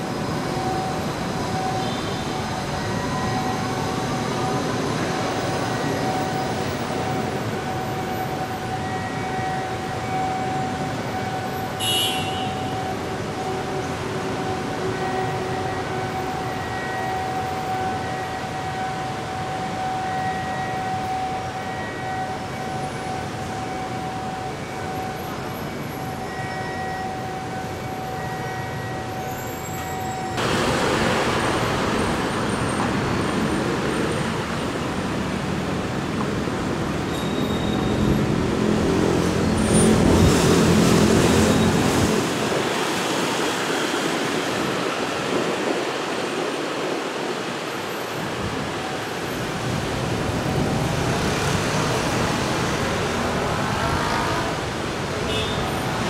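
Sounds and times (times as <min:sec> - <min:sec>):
traffic and rail noise: 0:00.0 - 0:56.0.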